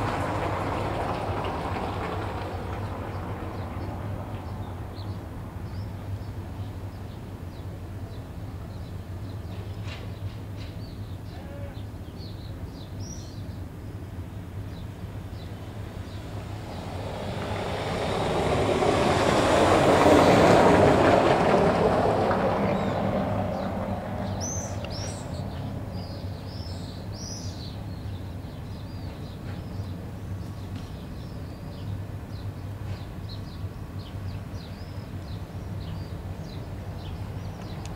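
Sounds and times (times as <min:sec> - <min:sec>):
vehicle passing close by: 0:00.0 - 0:05.8, 0:15.2 - 0:27.6
small birds chirping: 0:02.7 - 0:19.3, 0:22.6 - 0:37.9.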